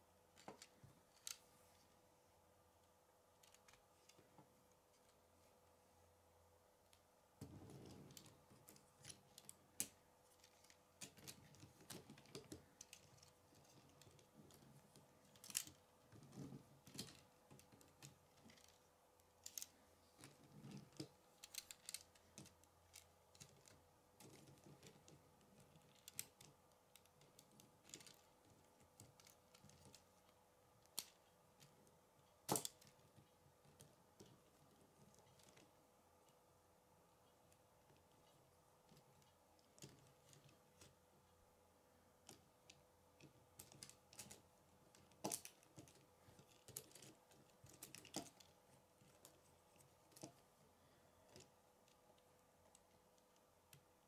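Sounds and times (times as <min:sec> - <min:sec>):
plastic pieces clicking together: 0:19.4 - 0:31.7.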